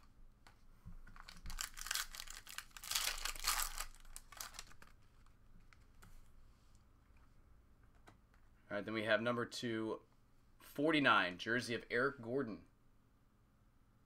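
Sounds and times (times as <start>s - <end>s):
foil wrapper tearing and crinkling: 1.2s - 5.2s.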